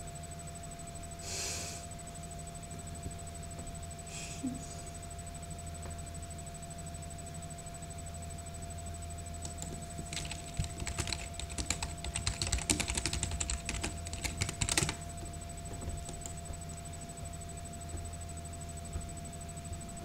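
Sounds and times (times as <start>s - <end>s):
computer keyboard typing: 9.4s - 15.2s, 16.0s - 16.5s.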